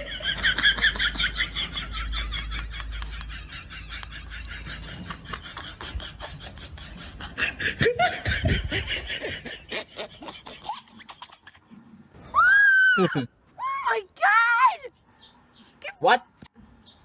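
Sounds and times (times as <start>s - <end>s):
rapid laughter: 0.0s - 11.7s.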